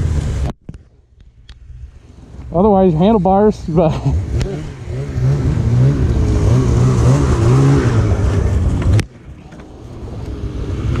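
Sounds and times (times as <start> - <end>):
snowmobile engine idling: 2.0 - 7.0.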